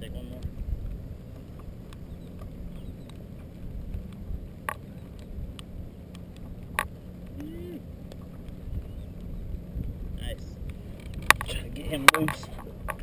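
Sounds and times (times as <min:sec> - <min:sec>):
choppy water: 0:00.0 - 0:13.0
wind rumbling on microphone: 0:00.0 - 0:13.0
sharp clicks: 0:10.6 - 0:13.0.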